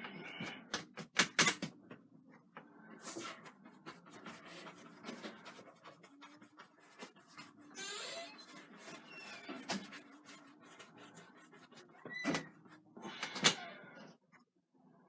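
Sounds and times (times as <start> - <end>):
brush scrubbing on canvas: 3.0 - 13.0
brush knocking: 3.2 - 12.8.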